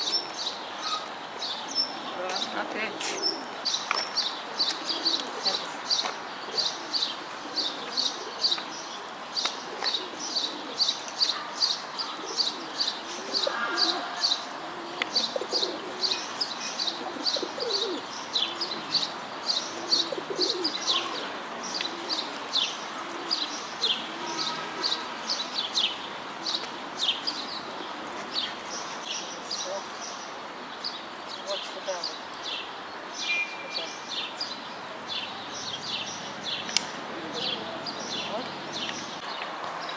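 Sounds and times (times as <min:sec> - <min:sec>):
pigeons cooing: 0:00.0 - 0:03.7, 0:04.3 - 0:29.6, 0:36.8 - 0:39.2
songbird chirping: 0:00.0 - 0:39.9.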